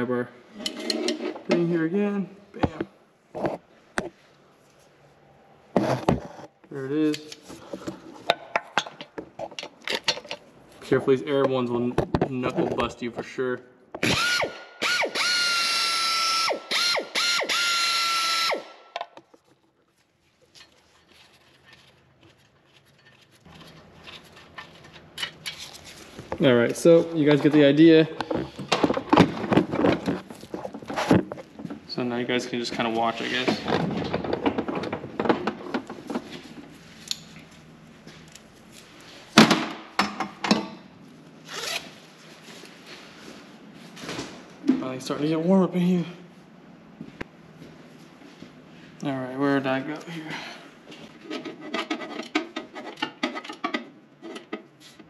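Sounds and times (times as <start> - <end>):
metal scrape: 0.5 - 1.5
air ratchet whining: 14.0 - 18.8.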